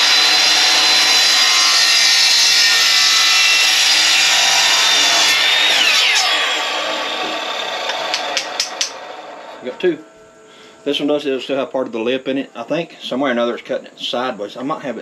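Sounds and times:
saw blade cutting plastic and wood: 0:00.0 - 0:09.3
miter saw motor whine: 0:00.0 - 0:11.6.

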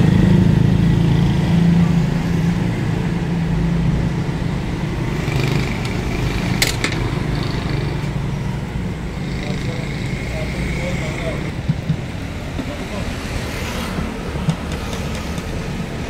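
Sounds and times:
low engine rumble: 0:00.0 - 0:16.0
street traffic: 0:00.0 - 0:16.0
sharp clicks: 0:14.4 - 0:15.7.

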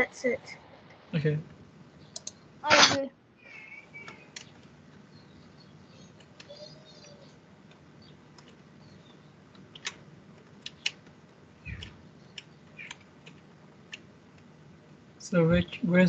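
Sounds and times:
low background hiss: 0:00.0 - 0:16.0
faint computer clicks: 0:02.1 - 0:02.4, 0:04.0 - 0:05.1, 0:05.9 - 0:14.5.

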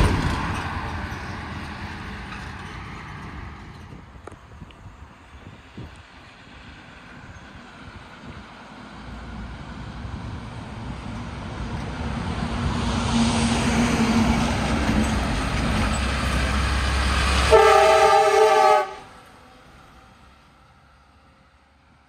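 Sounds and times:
diesel truck engine passing: 0:00.0 - 0:22.0
truck horn blast: 0:17.4 - 0:19.1.

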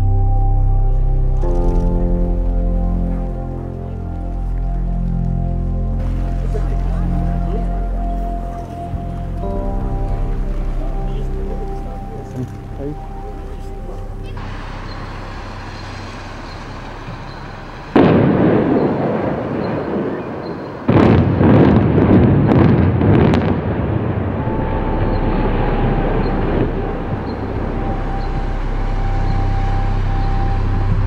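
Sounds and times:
building collapsing rumble: 0:00.0 - 0:31.0
demolition blasts: 0:14.1 - 0:29.1.

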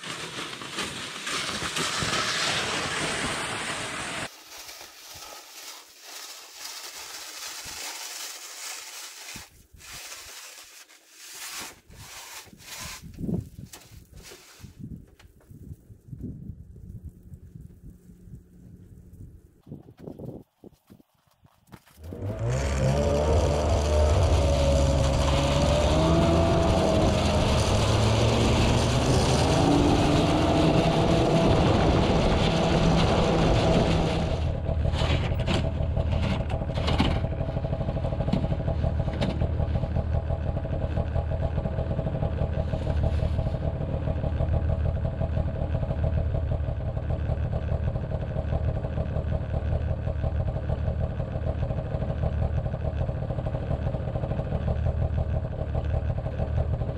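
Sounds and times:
vehicle engine running: 0:15.5 - 0:19.6, 0:21.7 - 0:56.9.

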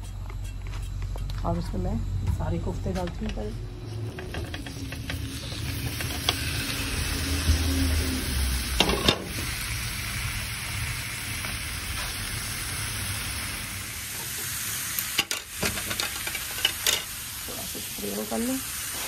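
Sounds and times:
meat sizzling in a frying pan: 0:04.4 - 0:19.0.

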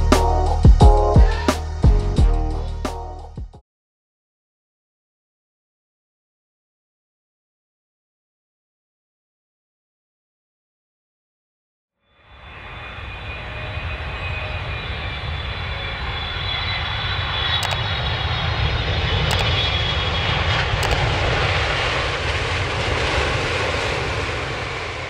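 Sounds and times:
jet engine roar: 0:12.1 - 0:25.0.

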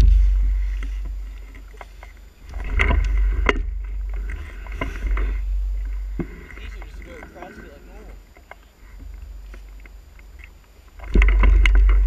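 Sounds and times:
wind buffeting microphone: 0:00.0 - 0:10.4
motorbike engine rumble: 0:00.0 - 0:12.0
bike knocking over bumps: 0:11.0 - 0:12.0.

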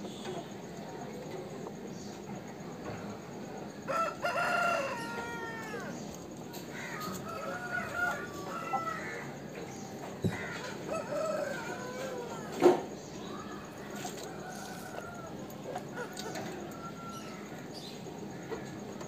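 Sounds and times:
chickens calling: 0:03.0 - 0:19.0
rooster crowing: 0:03.8 - 0:06.1, 0:06.7 - 0:09.4, 0:10.3 - 0:12.7, 0:13.4 - 0:17.6.

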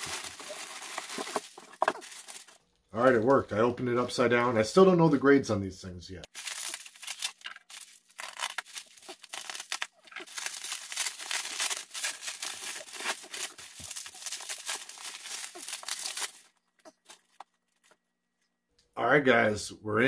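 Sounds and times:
packing material crinkling and tearing: 0:00.0 - 0:02.6, 0:06.3 - 0:18.0.

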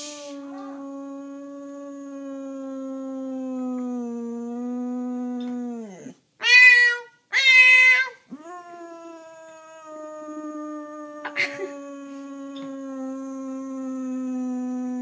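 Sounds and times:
dog howling: 0:00.0 - 0:06.1
loud high meowing: 0:06.4 - 0:08.2.

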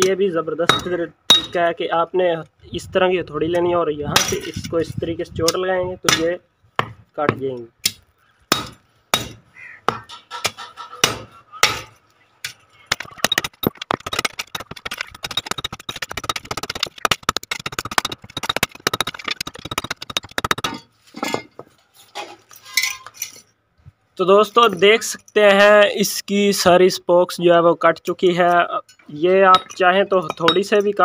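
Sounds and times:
hammer striking metal: 0:00.7 - 0:01.6, 0:08.5 - 0:11.9
rapid metallic clatter and ringing: 0:12.9 - 0:20.9.

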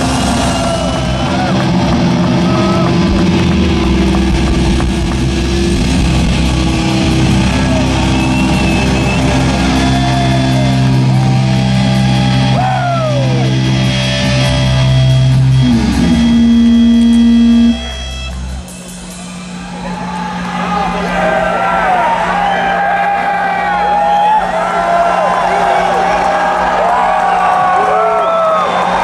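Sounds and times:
bass guitar: 0:00.0 - 0:19.2
distorted electric guitars: 0:00.0 - 0:19.6
drums: 0:00.0 - 0:29.0.

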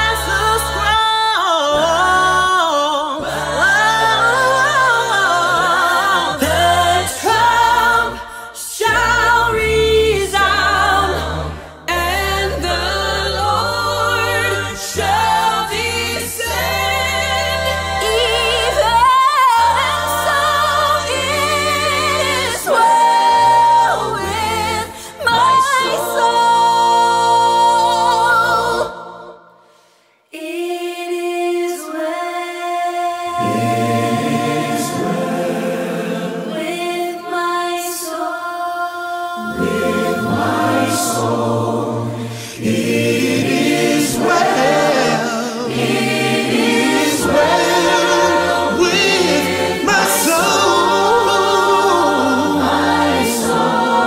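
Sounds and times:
choir singing: 0:00.0 - 0:54.0
person singing with accompaniment: 0:38.1 - 0:54.0.

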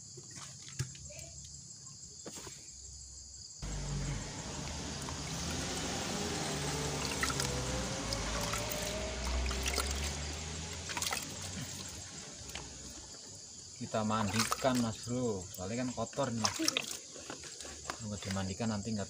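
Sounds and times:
faint rising tone: 0:03.6 - 0:13.1
water pouring onto plant leaves: 0:03.7 - 0:18.6.

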